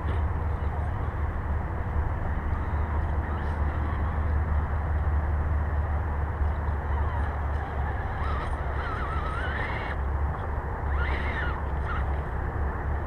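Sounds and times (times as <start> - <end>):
faint bird calls: 6.5 - 10.1, 10.8 - 12.3.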